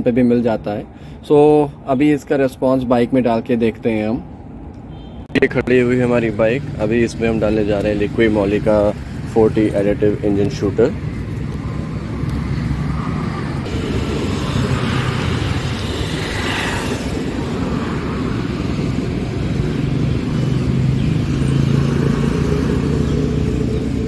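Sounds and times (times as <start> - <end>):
road traffic rumble: 0.0 - 24.0
vehicle passing: 5.6 - 24.0.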